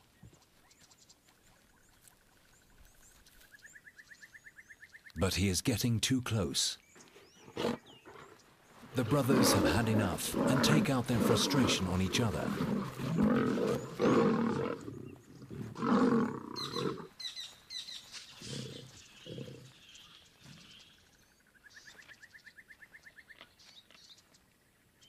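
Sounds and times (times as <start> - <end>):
lions snarling and growling: 7.2 - 17.2, 18.4 - 20.9.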